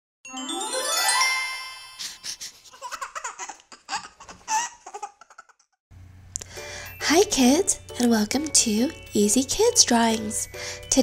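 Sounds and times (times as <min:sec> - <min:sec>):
rising swoop with chimes: 0:00.3 - 0:02.4.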